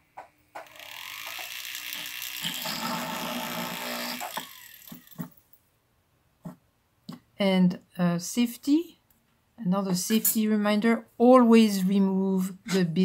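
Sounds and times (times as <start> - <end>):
rotary drill whining: 0.6 - 5.4.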